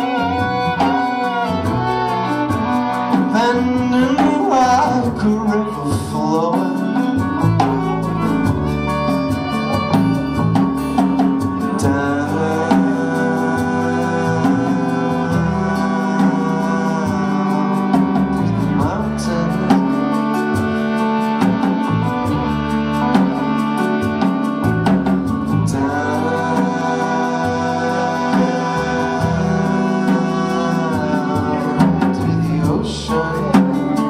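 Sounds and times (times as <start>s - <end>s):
man singing: 0.0s - 1.7s, 2.5s - 8.1s, 11.4s - 20.7s, 25.5s - 34.0s
fiddle: 0.0s - 34.0s
steady drum beat: 0.0s - 34.0s
strummed acoustic guitar: 0.0s - 34.0s
upright bass: 0.0s - 34.0s.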